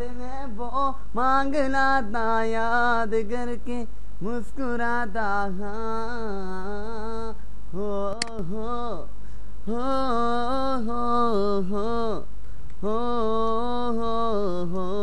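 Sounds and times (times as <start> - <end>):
person singing long wordless notes: 0.0 - 15.0
steady low hum: 0.0 - 15.0
brief click: 8.2 - 8.4.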